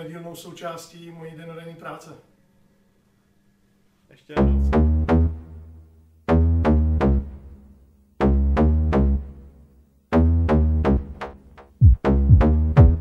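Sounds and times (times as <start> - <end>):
synthesizer chord hits with bass: 4.4 - 5.7, 6.3 - 7.6, 8.2 - 9.4, 10.1 - 13.0
drum machine booms: 10.2 - 13.0.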